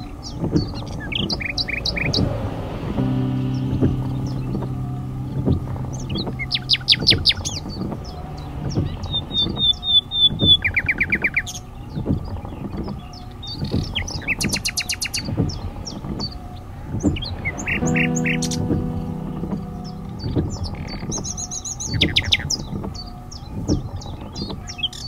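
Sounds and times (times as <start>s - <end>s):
low knocks: 2.1s - 9.6s, 17.0s - 22.2s.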